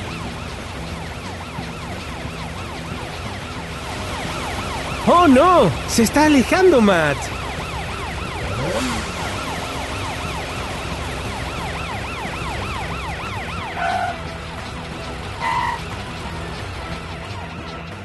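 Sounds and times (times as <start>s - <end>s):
cartoon police siren yelping: 4.1s - 14.2s.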